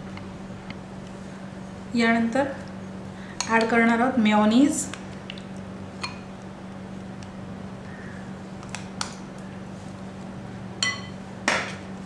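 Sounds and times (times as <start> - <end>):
spoon clinking on glass bowl: 10.8 - 11.2.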